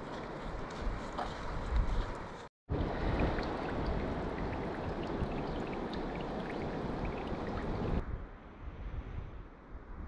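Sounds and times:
wind on microphone: 0.0 - 10.0
water trickling with splashes: 2.7 - 8.0.

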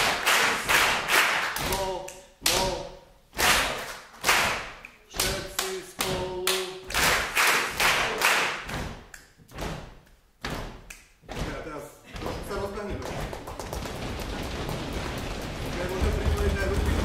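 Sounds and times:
group clapping and thumping rhythm: 0.0 - 17.0.

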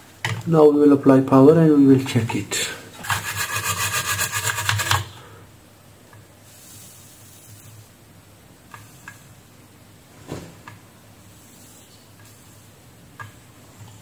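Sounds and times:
low hiss: 0.0 - 3.2, 5.0 - 14.0
brush scrubbing circuit board: 3.0 - 5.1.

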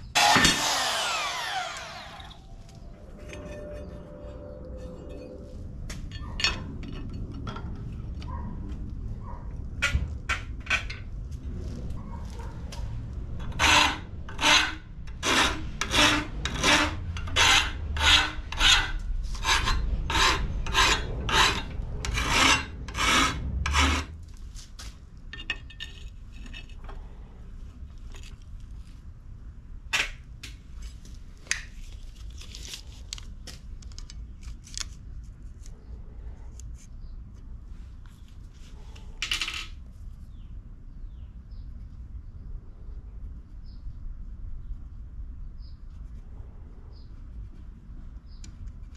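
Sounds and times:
file scraping steel: 0.1 - 5.3, 13.4 - 24.2.

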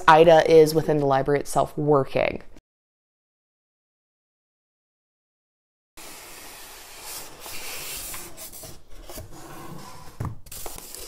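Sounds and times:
styrofoam scraping against cardboard: 6.0 - 11.0.

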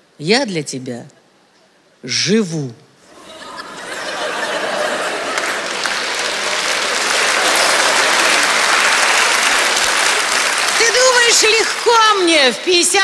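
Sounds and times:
audience applauding: 3.2 - 13.0.

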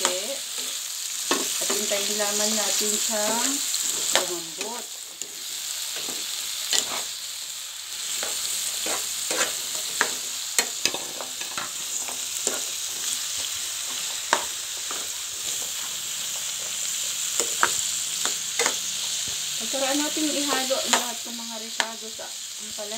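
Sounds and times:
vegetables sizzling in oil: 0.0 - 22.9
spoon scraping and knocking pan: 0.5 - 1.9, 3.0 - 7.2, 8.1 - 19.4.

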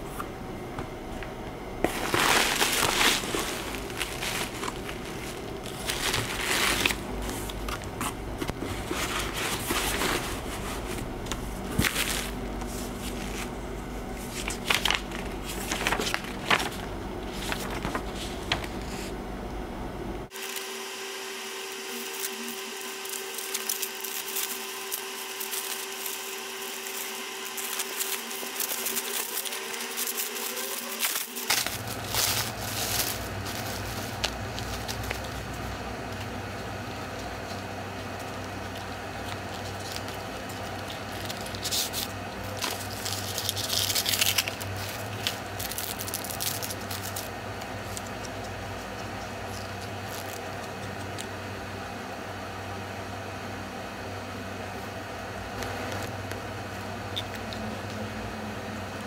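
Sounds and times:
steady hum: 0.0 - 59.0
packaging crinkling and rustling: 1.8 - 13.5, 14.2 - 19.0, 21.7 - 35.7, 37.1 - 51.3.

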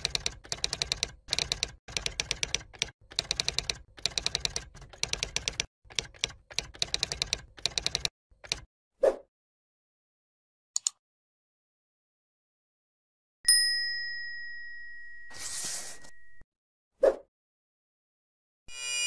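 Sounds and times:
rapid keystroke clicks: 0.0 - 8.7.

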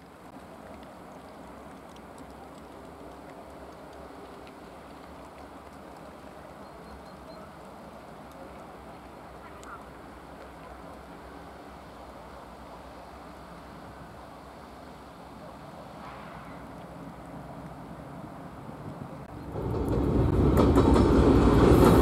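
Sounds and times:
faint clicks: 0.0 - 11.2
diesel locomotive rumbling: 0.0 - 22.0.

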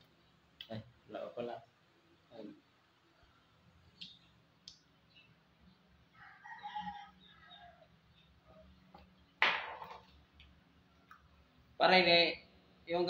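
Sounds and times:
rooster crowing: 6.1 - 7.9.

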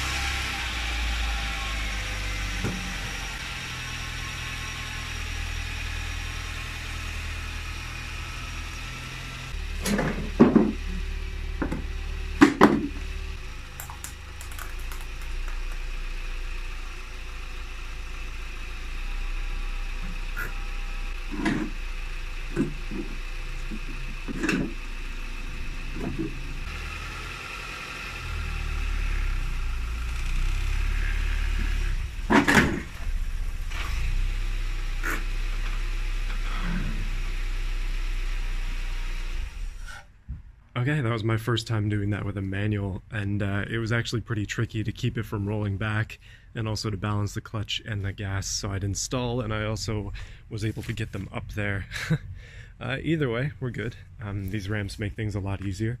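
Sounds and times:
car engine idling: 0.0 - 41.0
sharp knocks and clatters: 9.8 - 10.8, 11.6 - 13.0.

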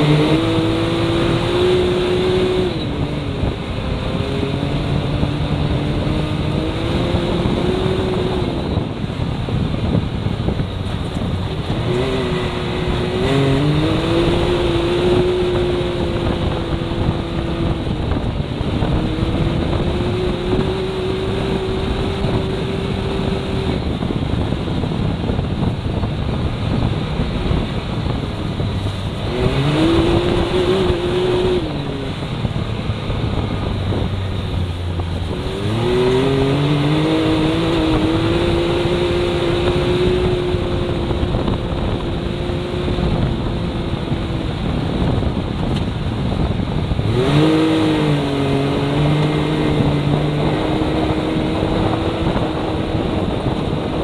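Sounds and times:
road and wind noise: 0.0 - 54.0
vehicle engine revving: 0.0 - 54.0.

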